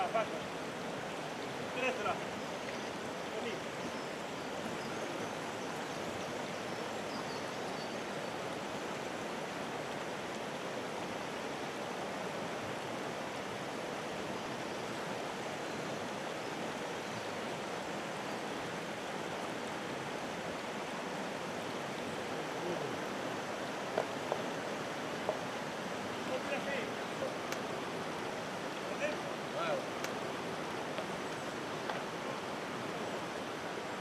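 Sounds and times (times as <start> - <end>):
water rushing over boulders: 0.0 - 34.0.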